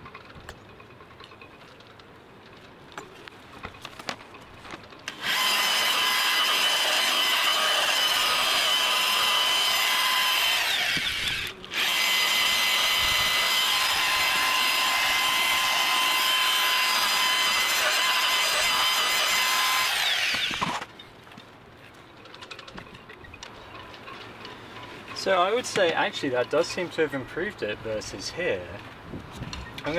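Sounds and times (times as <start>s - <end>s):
electric polisher whining: 5.1s - 20.8s.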